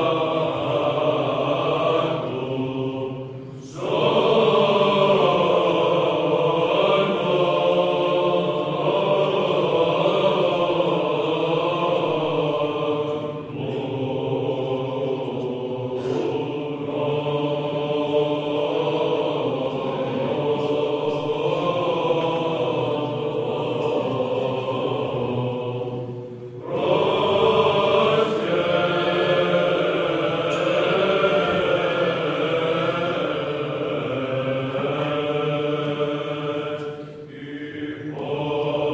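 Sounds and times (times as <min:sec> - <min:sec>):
steady held drone: 0:00.0 - 0:38.9
voices chanting: 0:00.0 - 0:38.9.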